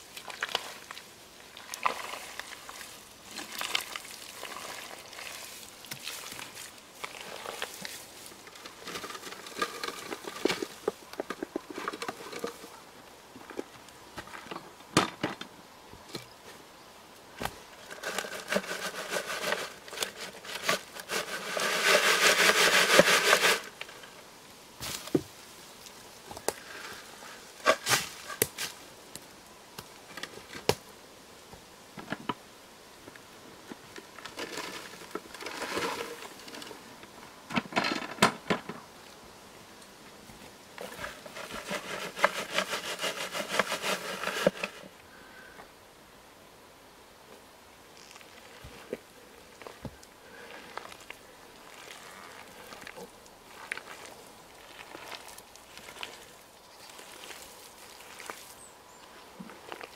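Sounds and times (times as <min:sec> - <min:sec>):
clay scraping through a sieve: 0:01.6 - 0:12.8, 0:17.8 - 0:24.1, 0:26.7 - 0:28.4, 0:34.3 - 0:36.8, 0:40.8 - 0:45.0, 0:50.4 - 0:58.6.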